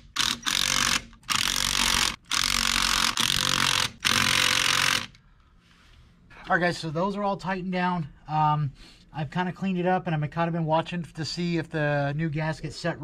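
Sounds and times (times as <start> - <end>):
cordless impact driver hammering: 0.0 - 5.2.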